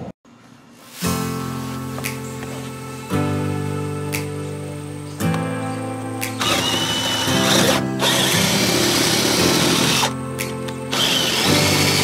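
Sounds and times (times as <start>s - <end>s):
background music: 0.8s - 12.0s
power drill boring through deck: 6.4s - 10.1s, 10.9s - 12.0s.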